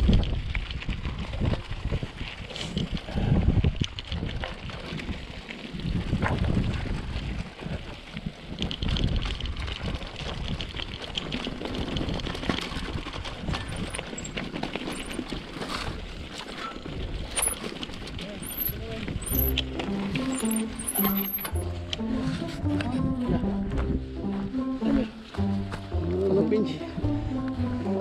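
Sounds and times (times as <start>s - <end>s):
bike rattling and knocking: 0.0s - 21.7s
tyres rumbling on dirt: 0.0s - 28.0s.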